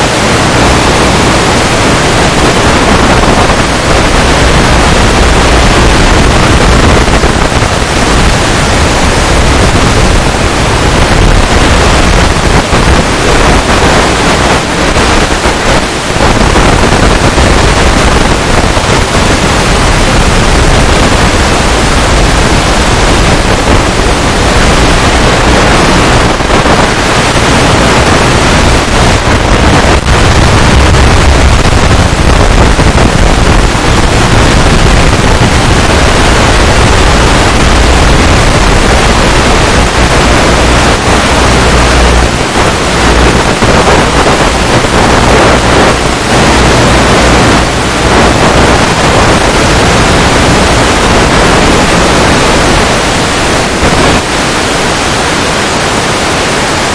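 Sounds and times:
loud static hiss: 0.0 - 56.9.

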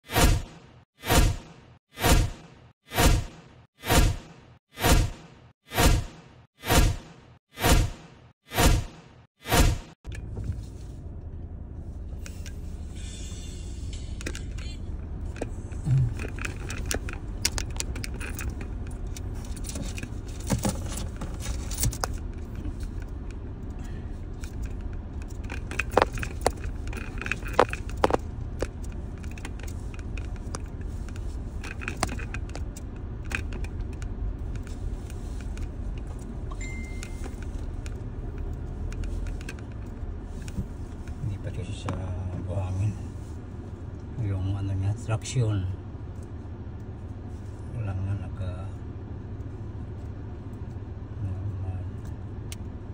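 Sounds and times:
car rumble on bumpy track: 10.0 - 52.9
loose objects rattling in car: 14.0 - 36.5.

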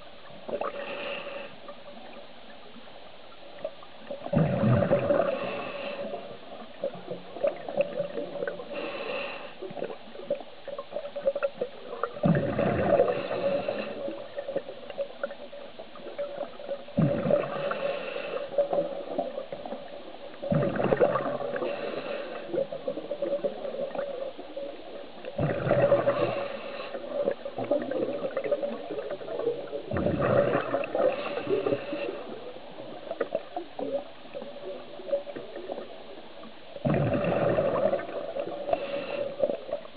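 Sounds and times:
faint steady hum: 0.0 - 39.9
diver's regulator breathing underwater: 0.5 - 1.7, 4.3 - 6.4, 7.4 - 10.0, 12.3 - 14.4, 17.0 - 19.7, 20.5 - 24.1, 25.4 - 32.5, 36.9 - 39.9.

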